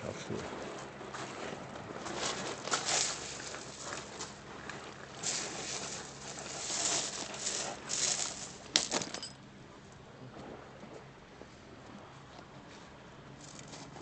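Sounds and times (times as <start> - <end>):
pebbles rattling: 2.2 - 4.4, 5.0 - 9.4.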